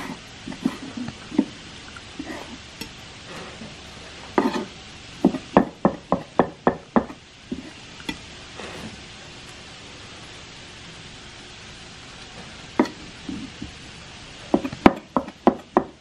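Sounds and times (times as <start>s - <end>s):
knife chopping on wooden board: 4.4s - 7.7s, 14.5s - 16.0s.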